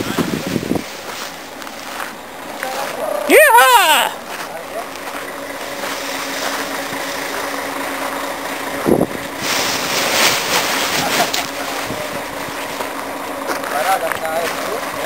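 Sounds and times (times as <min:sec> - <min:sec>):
wind blowing on microphone: 0:00.0 - 0:01.0.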